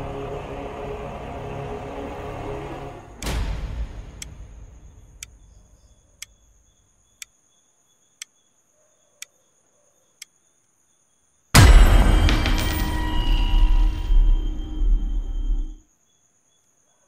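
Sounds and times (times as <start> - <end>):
clock ticking: 3.2 - 3.4
deep boom: 3.2 - 6.0, 11.6 - 15.8.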